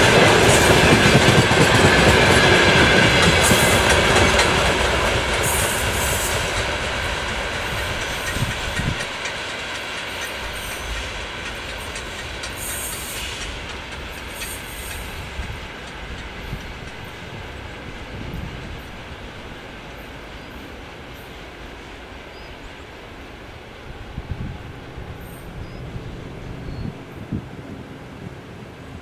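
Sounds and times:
freight train wheels clattering: 0.0 - 23.1.

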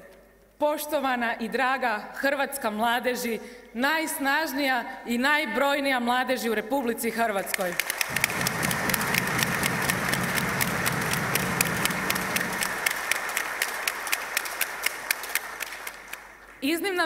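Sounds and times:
audience applauding: 7.6 - 16.6.

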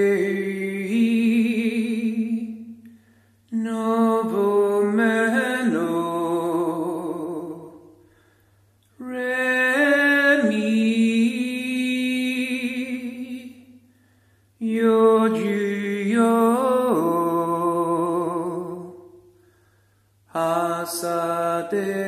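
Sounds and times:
person singing wordless held notes: 0.0 - 2.8, 20.3 - 22.0.

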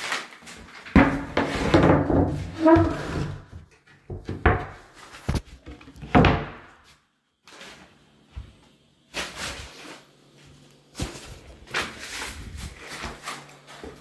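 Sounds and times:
wood scraping: 0.9 - 3.6.

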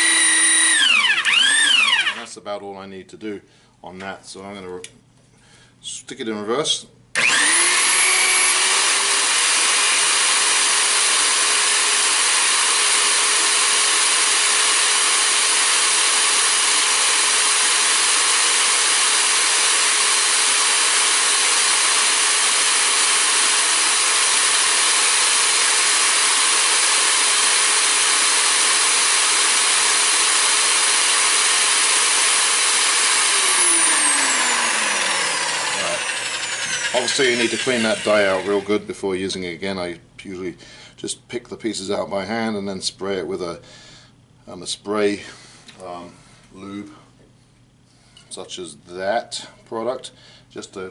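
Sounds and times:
electric pipe threader motor whine: 0.0 - 2.3, 7.2 - 38.8.

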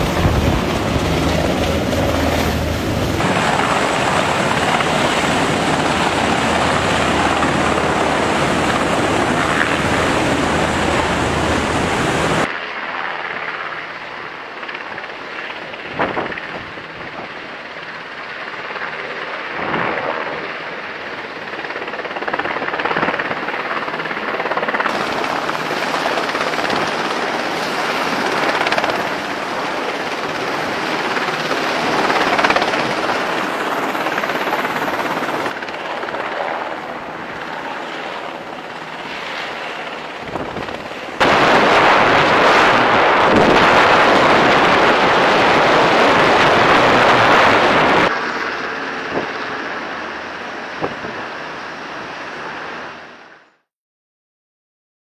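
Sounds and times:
deck machinery: 0.0 - 12.5
helicopter hovering: 0.0 - 53.3
wind: 0.0 - 53.6.

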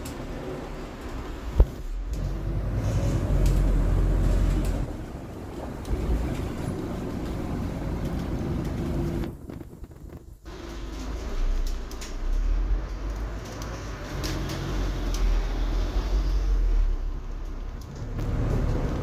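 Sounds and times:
bus engine rumble: 0.0 - 19.0
road noise: 0.0 - 19.0.

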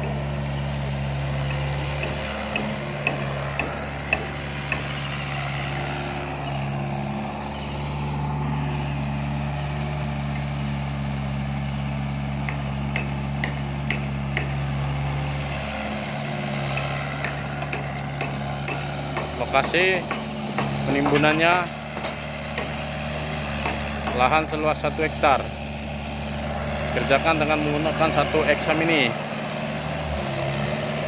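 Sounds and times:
excavator diesel engine running: 0.0 - 31.0
sharp knocks: 1.5 - 4.9, 12.4 - 14.6, 16.2 - 22.8, 23.6 - 24.3.

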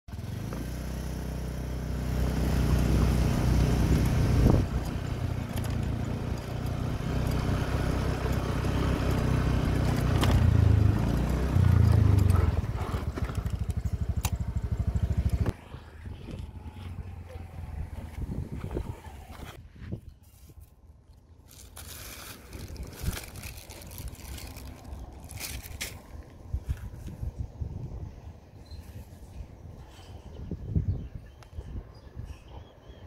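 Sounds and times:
motorcycle engine running: 0.1 - 19.5.

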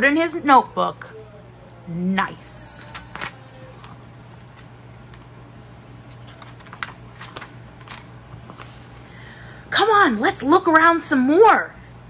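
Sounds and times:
faint steady hum: 0.0 - 12.0
book page turning: 2.8 - 5.3, 5.9 - 9.2
paper crinkles and taps: 2.9 - 5.3, 6.1 - 8.8.

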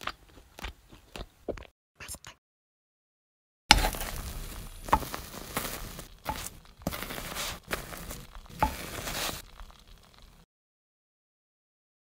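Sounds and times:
spatula scraping and tapping pan: 3.7 - 10.3
food sizzling in a frying pan: 3.7 - 10.5.

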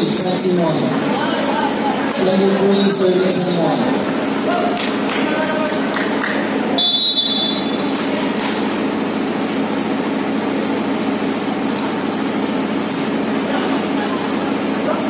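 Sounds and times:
referee's whistle: 6.8 - 7.9.

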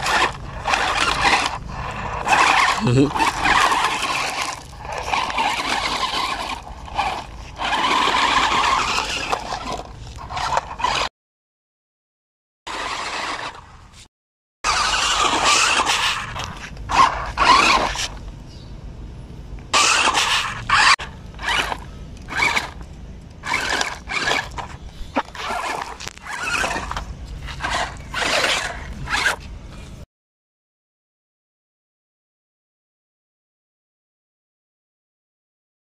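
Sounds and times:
toy car electric motors whirring: 0.0 - 11.1, 12.7 - 18.3, 19.7 - 30.0
wheels over loose gravel: 0.0 - 11.1, 12.7 - 14.1, 14.7 - 18.6, 19.7 - 30.0.

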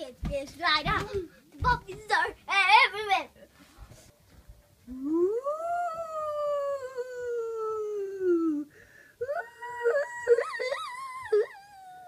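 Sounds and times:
long howls: 9.2 - 12.0.

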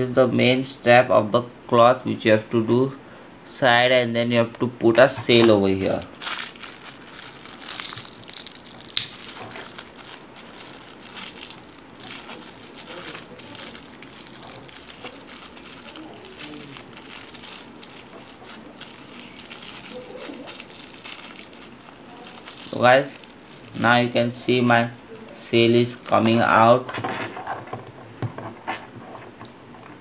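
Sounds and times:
plastic packet crinkling: 6.1 - 26.4.

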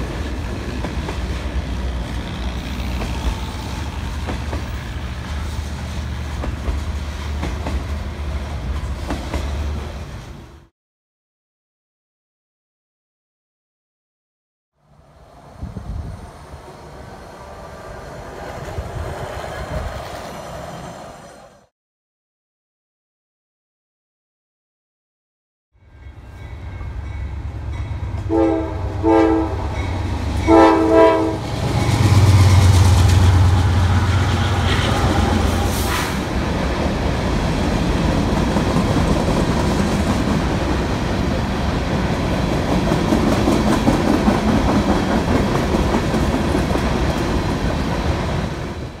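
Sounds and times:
train wheels clattering on rails: 0.0 - 9.9, 29.7 - 48.6
diesel locomotive engines droning: 0.0 - 10.7, 14.8 - 21.7, 25.8 - 49.0
train air horn blasts: 28.0 - 36.3.

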